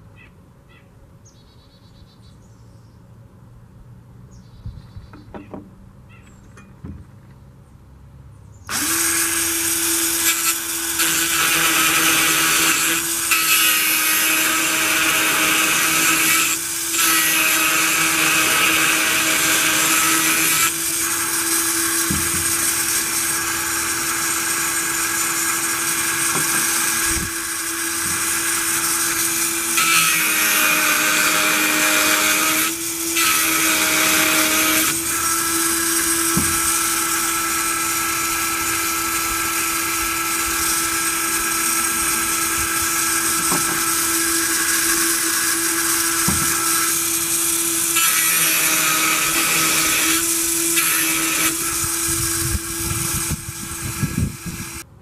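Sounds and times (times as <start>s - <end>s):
electric grinder motor running: 8.7s - 54.9s.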